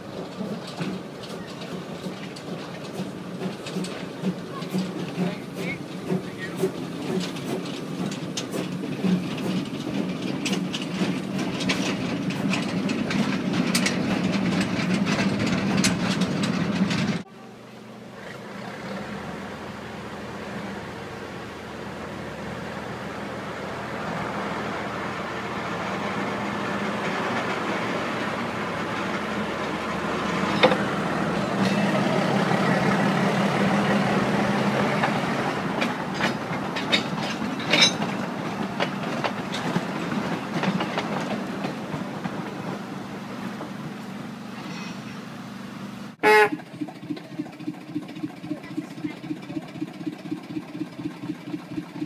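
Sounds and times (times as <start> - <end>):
diesel engine idling: 0.0 - 37.6, 45.2 - 52.0
diesel locomotive running: 0.0 - 52.0
running gear clicks and rattles: 0.1 - 17.2, 35.8 - 42.5.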